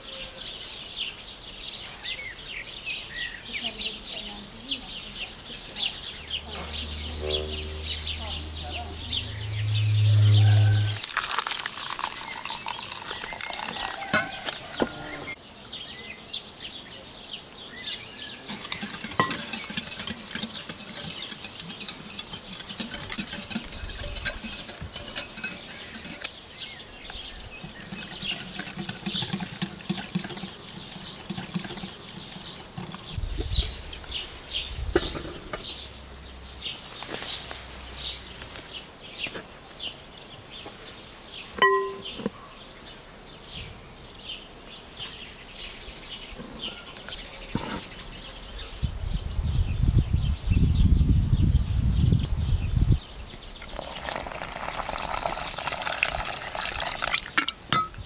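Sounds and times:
small birds chirping: 0.0 - 11.0, 11.8 - 58.0
low rumble: 6.4 - 11.0
whisk scraping glass bowl: 11.8 - 14.7, 18.5 - 26.3, 27.1 - 33.2.

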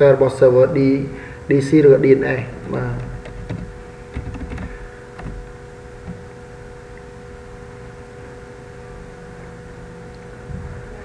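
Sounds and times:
steady background hum: 0.0 - 11.0
keyboard keys tapping: 2.6 - 6.2.

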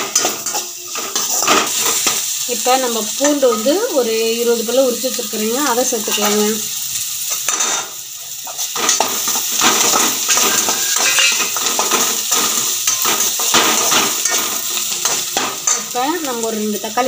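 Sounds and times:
skimmer scraping and clinking pan: 0.0 - 2.2, 7.3 - 15.9
onions and garlic sizzling in oil: 0.0 - 17.0.

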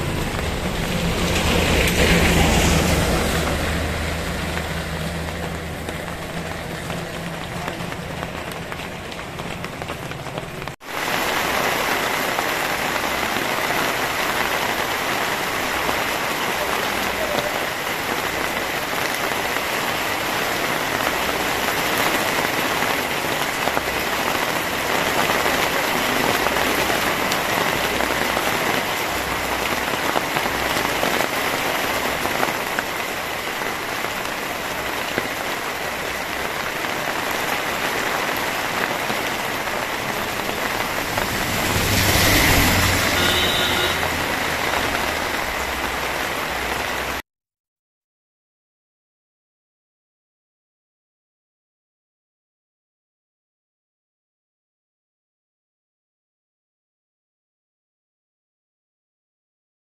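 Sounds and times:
heavy rain on pavement: 0.0 - 47.2.

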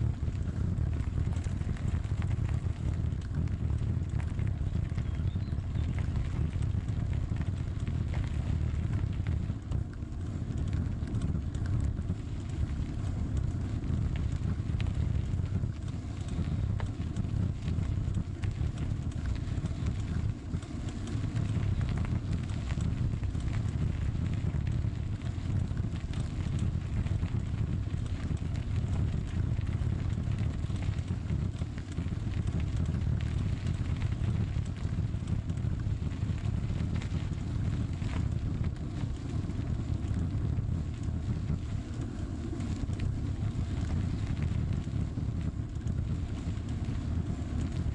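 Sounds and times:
bicycle tyres rumbling on gravel: 0.0 - 47.9
gravel and bike clicks and rattles: 0.0 - 47.9
wind noise on microphone: 0.0 - 47.9.

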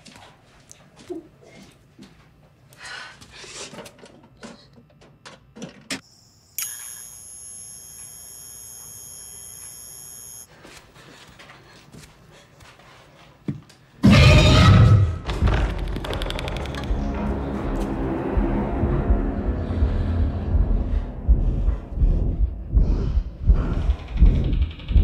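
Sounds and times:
high-pitched electronic whine: 6.0 - 10.5.

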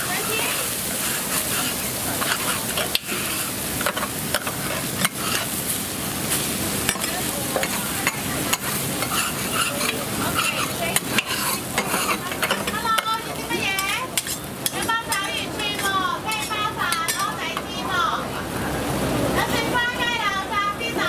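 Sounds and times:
metal spatulas scraping griddle: 0.0 - 5.7, 6.3 - 17.3
pancake sizzling on griddle: 0.0 - 18.2.

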